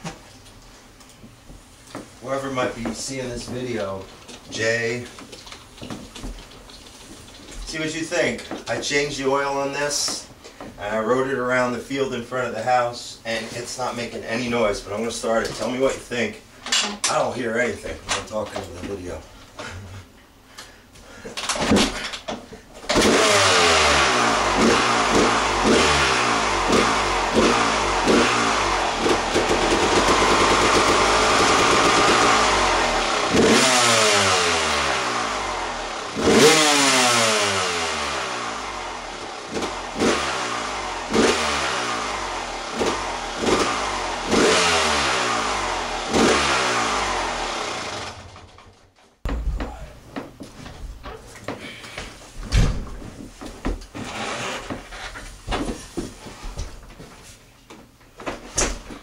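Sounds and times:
dirt bike engine revving: 0:22.9 - 0:48.6, 0:54.0 - 0:55.0.

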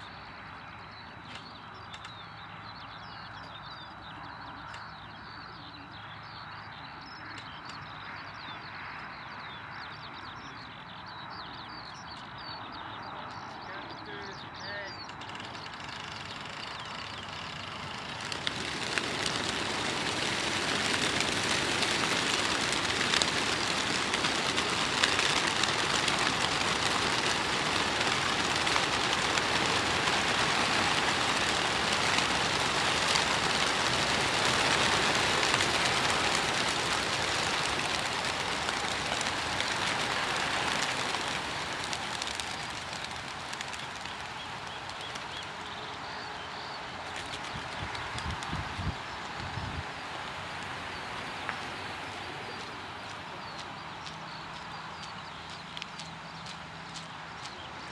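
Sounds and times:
pigeon wingbeats whirring: 0:15.0 - 0:57.9.

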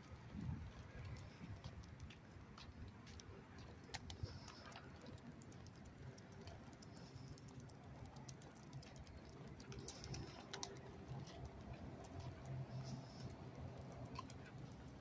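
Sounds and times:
light clicking and tapping: 0:00.3 - 0:15.0
footsteps on pavement: 0:08.8 - 0:15.0.

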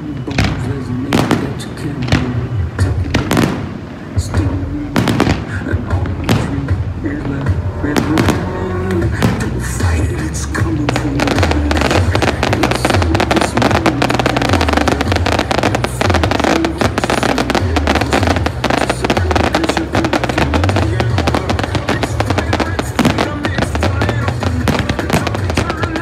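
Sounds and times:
fireworks bursting and crackling: 0:00.0 - 0:26.0
pop music with heavy bass: 0:00.0 - 0:26.0.

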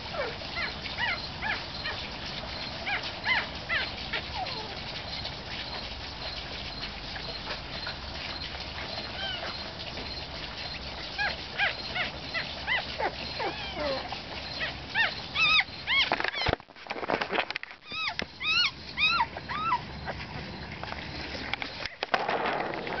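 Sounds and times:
puppy squealing: 0:00.1 - 0:02.0, 0:02.6 - 0:05.8, 0:09.0 - 0:09.6, 0:11.1 - 0:16.5, 0:17.8 - 0:20.2
handling rustle: 0:15.9 - 0:18.4.

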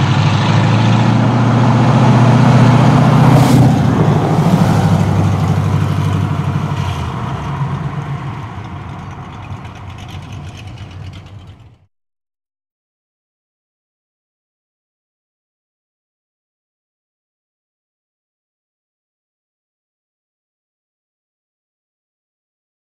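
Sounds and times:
car exhaust driving past: 0:00.0 - 0:11.9.

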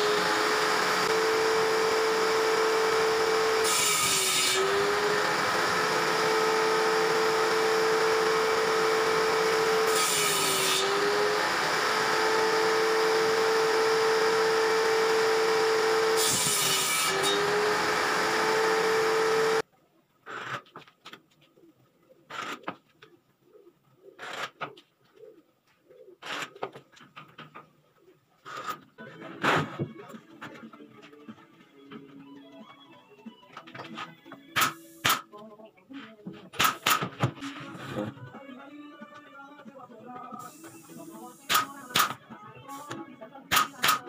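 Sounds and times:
saw blade cutting wood: 0:00.0 - 0:19.6, 0:34.6 - 0:35.3, 0:36.6 - 0:37.1, 0:40.6 - 0:44.0
table saw running: 0:00.0 - 0:19.6.

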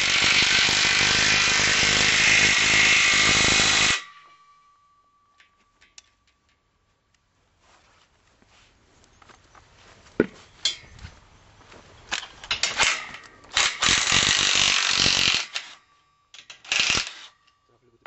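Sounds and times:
sharp metal clicks: 0:12.1 - 0:17.7
cordless drill driving bolt: 0:16.4 - 0:17.3.

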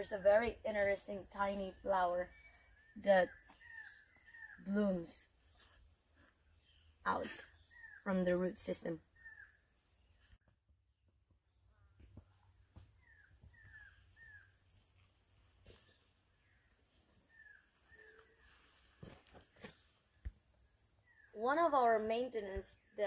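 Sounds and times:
insect chirps: 0:00.0 - 0:23.0.

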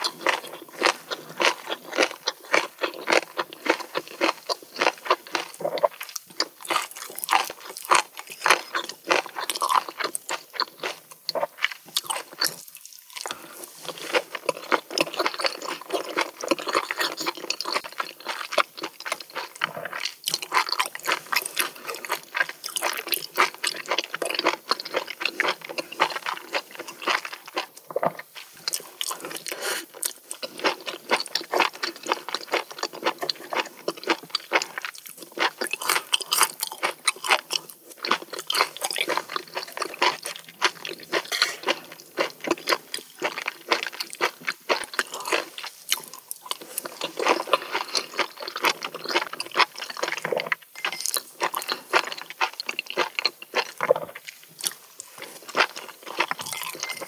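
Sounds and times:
person chewing food: 0:00.0 - 0:57.0.

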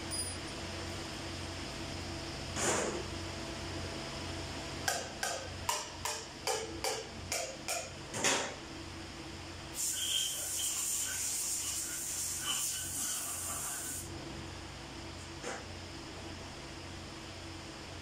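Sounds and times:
compressed air hissing: 0:09.7 - 0:14.1.

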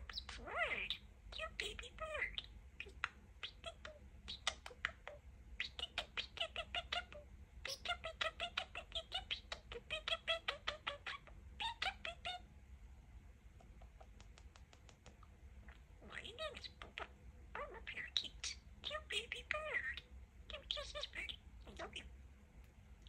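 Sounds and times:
budgerigar chattering: 0:16.0 - 0:22.1.

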